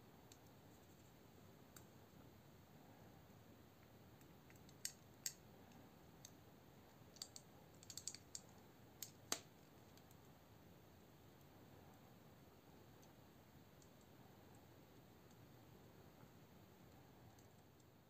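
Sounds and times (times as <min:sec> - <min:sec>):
folding knife parts clicking: 0:07.1 - 0:08.4.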